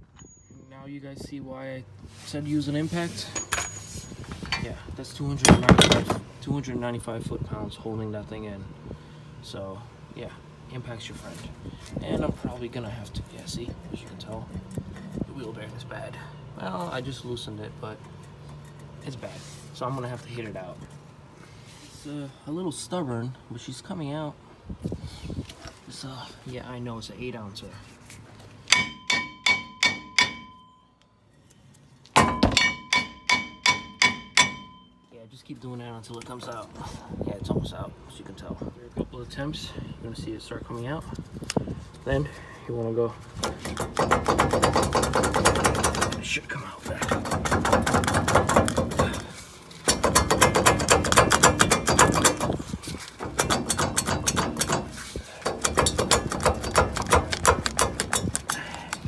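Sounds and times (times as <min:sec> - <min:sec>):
hammer striking metal rotor: 0:28.7 - 0:30.8, 0:32.2 - 0:34.9.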